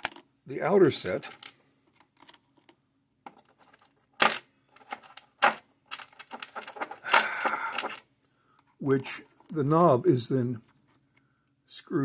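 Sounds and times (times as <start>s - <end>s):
metal jingling rattle: 3.3s - 8.1s.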